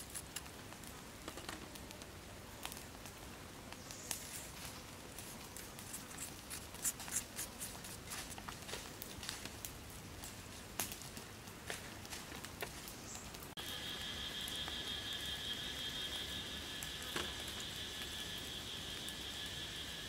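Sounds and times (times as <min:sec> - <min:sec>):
seasoning granules pattering on food: 0:04.0 - 0:11.2.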